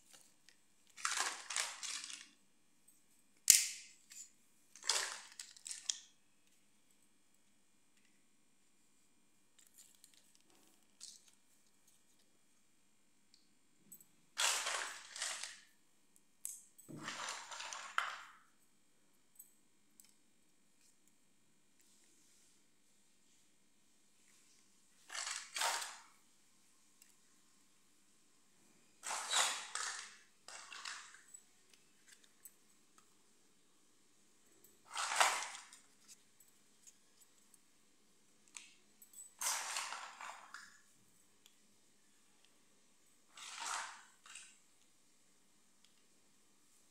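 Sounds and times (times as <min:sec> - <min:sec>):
plastic toys rustling: 0:00.0 - 0:02.4, 0:04.1 - 0:06.2, 0:14.4 - 0:15.7, 0:16.9 - 0:18.3, 0:25.0 - 0:26.2, 0:29.0 - 0:31.3, 0:34.8 - 0:36.4, 0:39.3 - 0:40.8, 0:43.3 - 0:44.6.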